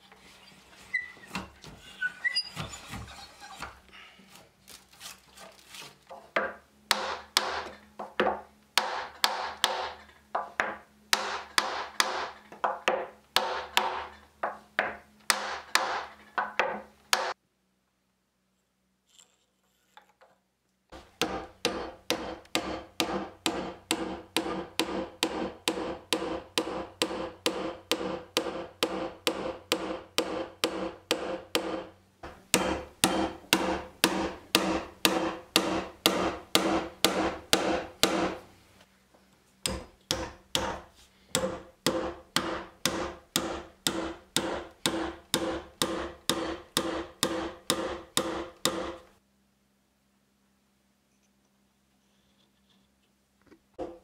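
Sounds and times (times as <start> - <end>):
hammer driving wooden pegs: 6.4 - 17.4, 21.0 - 38.5, 39.6 - 49.1.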